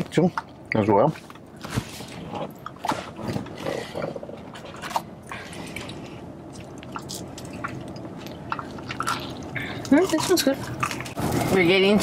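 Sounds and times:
crunchy food being chewed: 0:05.8 - 0:11.2.

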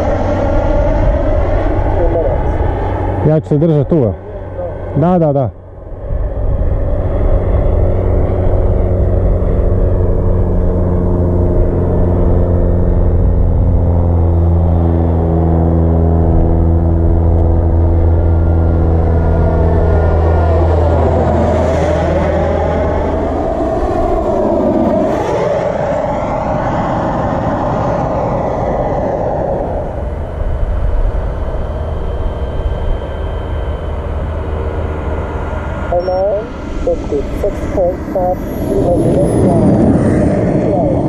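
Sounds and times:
jet passing overhead: 0:00.0 - 0:41.0
steady low hum: 0:00.0 - 0:41.0.

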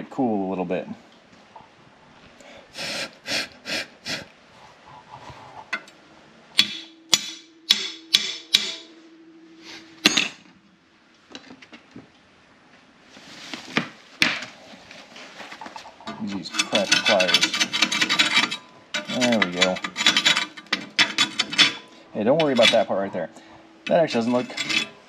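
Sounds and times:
sharp metal taps with ringing: 0:06.6 - 0:09.3
metal tool scraping weld: 0:16.1 - 0:23.1, 0:23.8 - 0:25.0.

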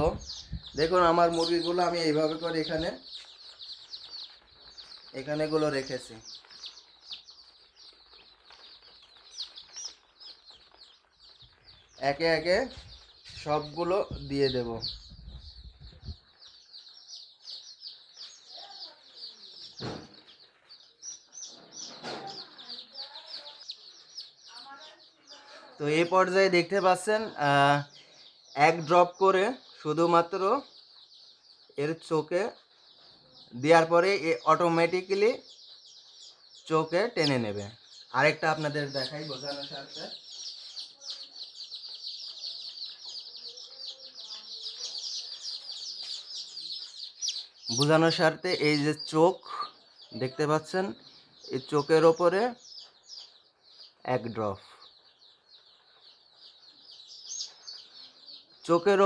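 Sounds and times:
chicks peeping: 0:00.0 - 0:59.0
brief thump: 0:19.8 - 0:20.2.

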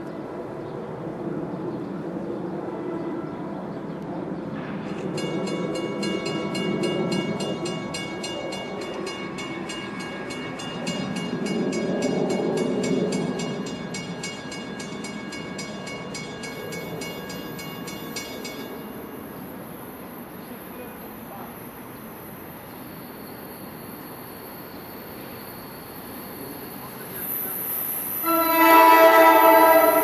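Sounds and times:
railroad crossing bell ringing: 0:04.9 - 0:21.6, 0:23.0 - 0:30.0.

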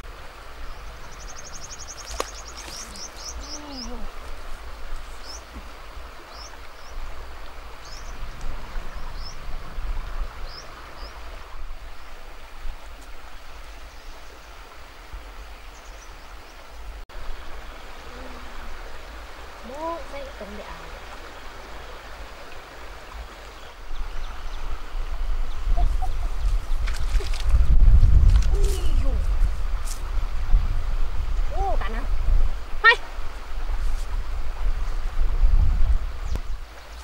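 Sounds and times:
river water flowing: 0:00.0 - 0:37.0
small bird trilling and chirping: 0:01.1 - 0:04.0.

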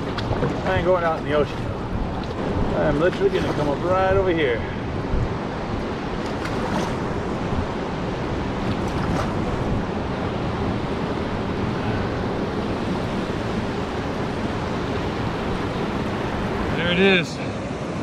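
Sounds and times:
surf breaking: 0:00.0 - 0:05.3
wind on microphone: 0:00.0 - 0:16.8.

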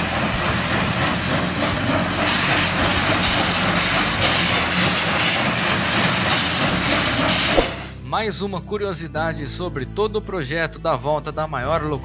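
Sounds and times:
steam locomotive exhaust and hiss: 0:00.0 - 0:08.0
train wheels clattering on rails: 0:00.0 - 0:08.0.

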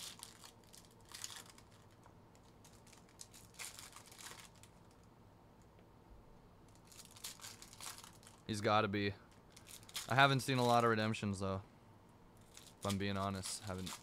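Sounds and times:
foil wrappers crinkling and tearing: 0:00.0 - 0:05.0, 0:06.8 - 0:08.5, 0:09.3 - 0:10.8, 0:12.4 - 0:14.0.

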